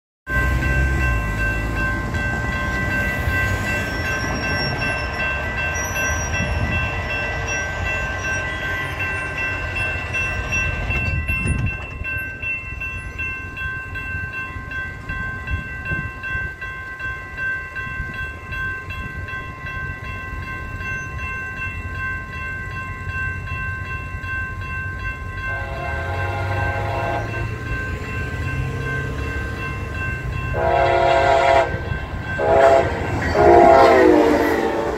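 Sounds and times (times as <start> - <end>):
crossing bell ringing: 0.3 - 34.9
train horn blast: 25.5 - 27.5, 30.5 - 34.9.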